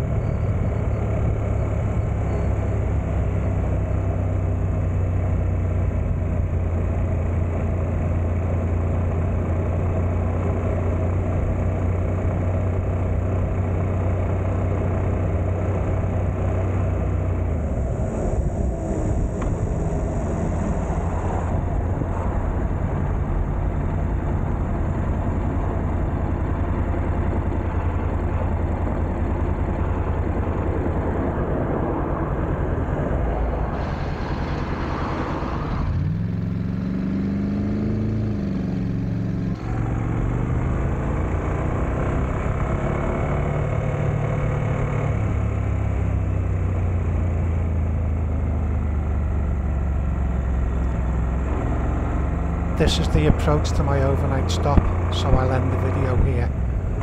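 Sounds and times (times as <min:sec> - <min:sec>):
wind and road noise: 0:00.0 - 0:57.0
motorcycle engine running: 0:36.2 - 0:57.0.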